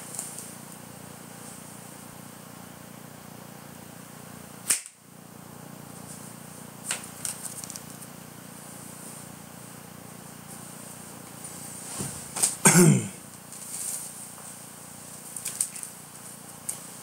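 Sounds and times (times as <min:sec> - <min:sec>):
steady hiss: 0:05.8 - 0:17.0
run of small clicks: 0:06.9 - 0:08.1.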